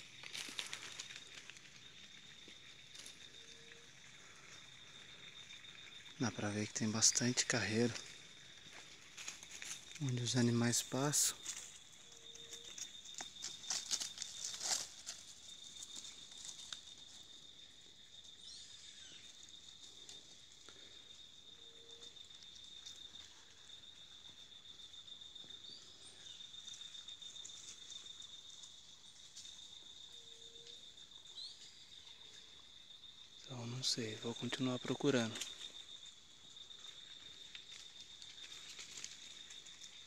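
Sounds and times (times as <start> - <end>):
insect trilling: 0.0 - 40.0
footsteps in leaf litter: 13.2 - 16.4.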